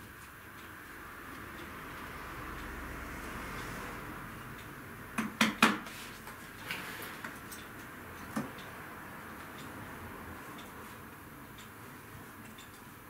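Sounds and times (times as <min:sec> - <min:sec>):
hammer striking tacks into wood: 0:05.2 - 0:05.9.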